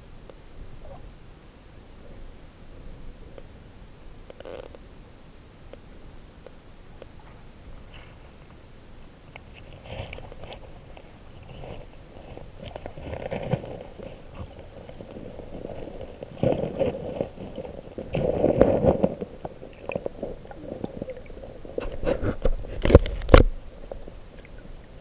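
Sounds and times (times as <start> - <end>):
underwater gurgling water: 6.8 - 25.0
sharp underwater clicks and knocks: 16.4 - 24.7.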